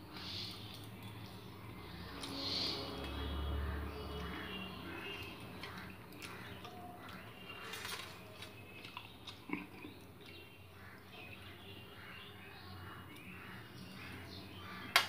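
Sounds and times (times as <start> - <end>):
fingers mixing food squelching: 0.5 - 11.5.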